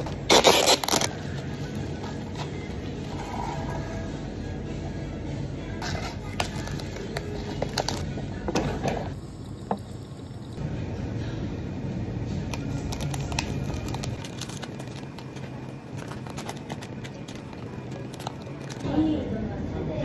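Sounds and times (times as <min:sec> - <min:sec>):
low background hum: 0:00.0 - 0:20.0
paper noodle cup rustling: 0:12.8 - 0:18.8.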